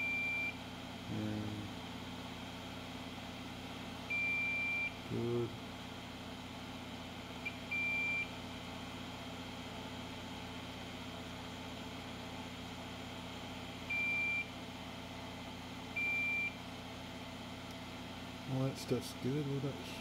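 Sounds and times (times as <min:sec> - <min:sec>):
multimeter high beeps: 0:00.0 - 0:00.6, 0:04.1 - 0:05.0, 0:07.5 - 0:08.3, 0:13.9 - 0:14.5, 0:16.0 - 0:16.6.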